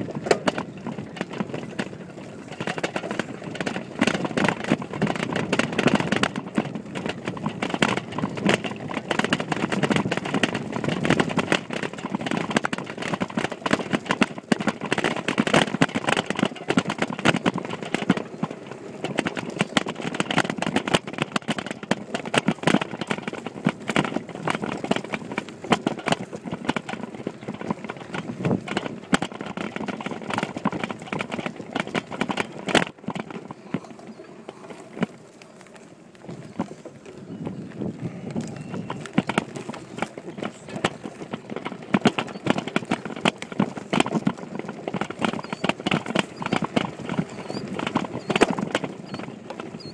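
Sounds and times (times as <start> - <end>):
bike rattling and knocking: 0.0 - 49.9
rumbling tyre noise: 0.0 - 49.9.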